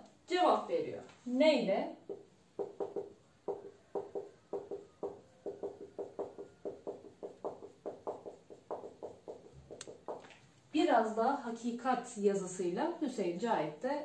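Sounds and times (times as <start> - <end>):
marker squeaking on whiteboard: 2.1 - 10.4.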